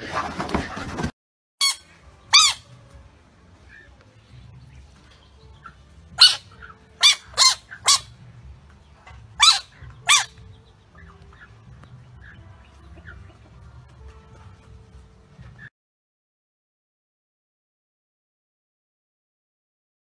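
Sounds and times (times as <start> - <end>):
frog distress squeaks: 1.6 - 2.7, 6.2 - 8.2, 9.4 - 10.4.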